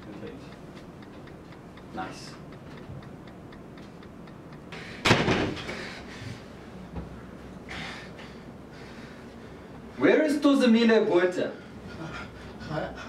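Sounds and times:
faint regular ticking: 0.0 - 6.7
loud slam: 5.0 - 5.6.

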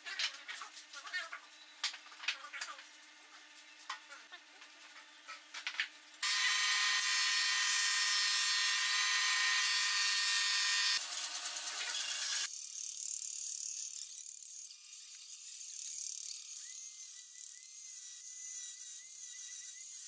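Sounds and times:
band saw humming: 6.2 - 12.5
power tool high whine: 6.2 - 12.6.

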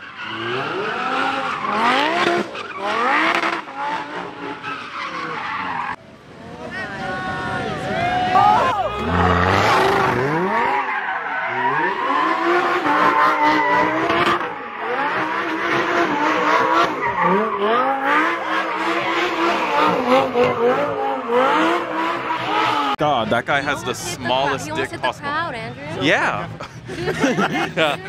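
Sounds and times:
car engine revving: 0.0 - 6.0, 8.9 - 28.0
tyres squealing on pavement: 4.2 - 6.0, 6.9 - 21.4.

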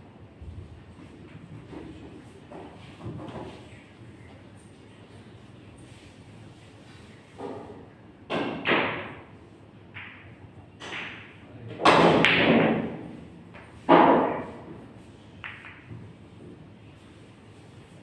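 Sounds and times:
pool balls clacking: 9.9 - 14.7, 15.4 - 16.5.

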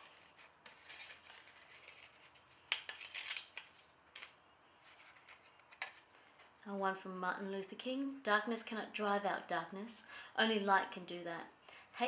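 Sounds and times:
paper tags and envelopes rustling: 0.0 - 6.6.

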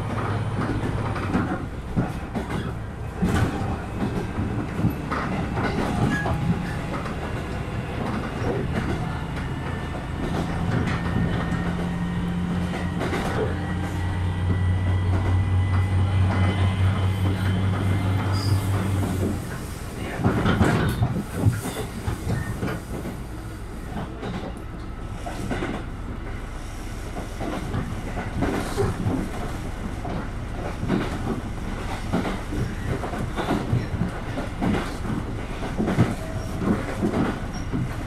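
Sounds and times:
train wheels rumbling on rails: 0.0 - 38.0
wheels clicking over rail joints: 0.1 - 23.2.

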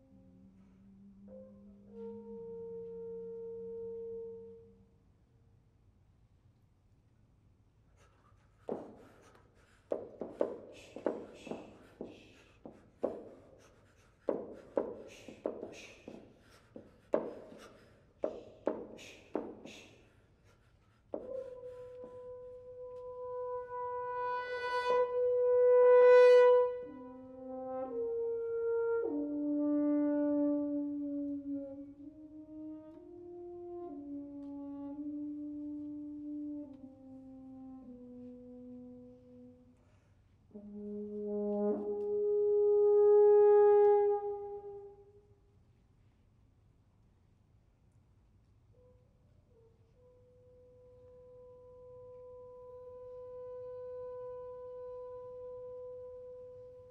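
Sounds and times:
breathy air through horns: 7.8 - 22.4, 39.7 - 40.6
french horn long steady note: 21.6 - 45.4, 49.6 - 56.9.

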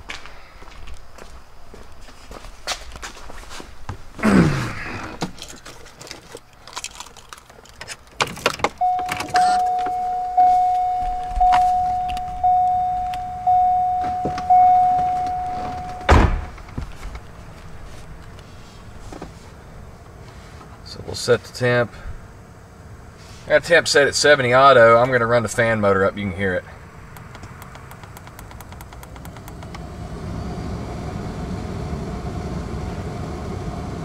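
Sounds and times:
car warning chime dinging: 8.8 - 16.3, 27.1 - 29.7
car door thumping shut: 13.9 - 16.9
clicks: 27.2 - 29.8.

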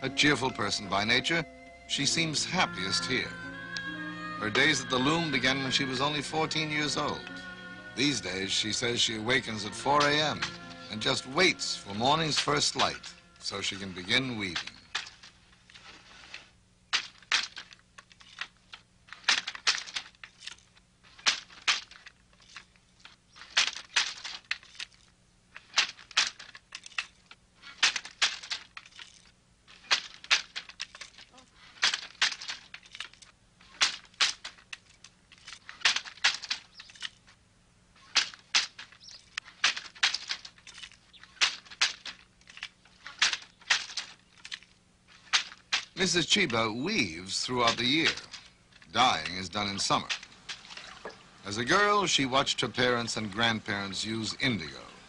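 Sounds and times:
hand loom wooden clacks: 8.8 - 37.4, 38.0 - 51.8.

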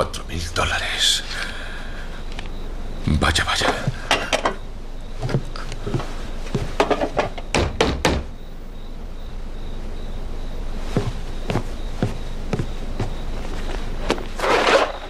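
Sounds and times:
knocking on wooden door: 7.5 - 8.3.

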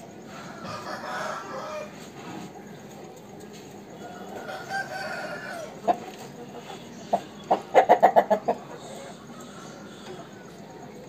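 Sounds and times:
rooster clucking: 0.1 - 2.6, 3.9 - 11.0
rooster crowing: 0.3 - 2.1, 4.0 - 5.9, 8.8 - 10.7.

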